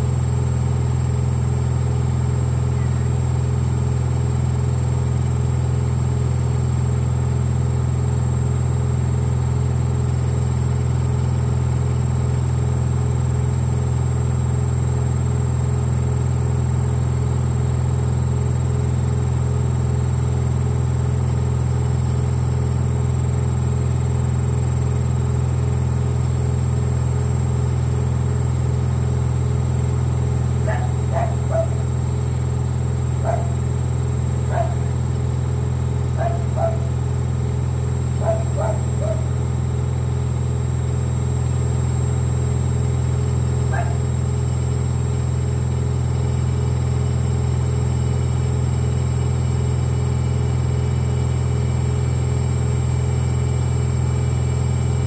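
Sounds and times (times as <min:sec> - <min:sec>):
washing machine spinning: 0:27.6 - 0:45.4.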